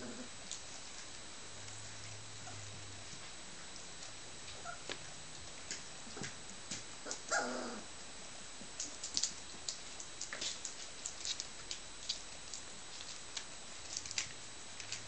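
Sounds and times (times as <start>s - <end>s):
puppy whining: 4.6s - 4.9s, 7.0s - 7.9s.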